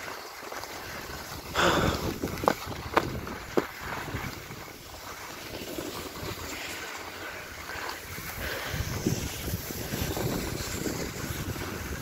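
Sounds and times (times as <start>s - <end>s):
snowboard scraping across snow: 0.0s - 12.0s
wind buffeting microphone: 0.8s - 5.1s, 8.0s - 12.0s.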